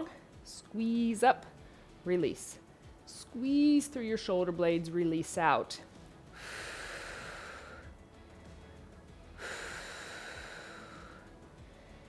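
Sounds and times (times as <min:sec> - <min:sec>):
faint background music: 0:00.0 - 0:12.0
woman breathing hard: 0:06.3 - 0:08.1, 0:09.3 - 0:12.0.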